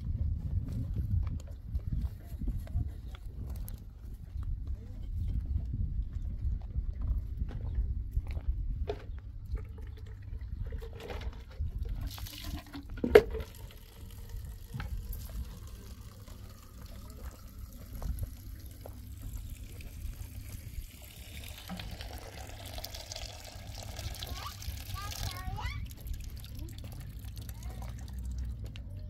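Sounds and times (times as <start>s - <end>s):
water trickling and splashing: 9.5s - 29.0s.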